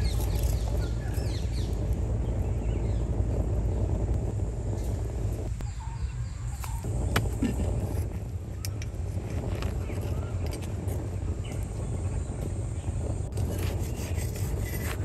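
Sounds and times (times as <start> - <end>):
birds chirping: 0.0 - 3.2, 5.6 - 7.8
low rumble: 0.0 - 15.0.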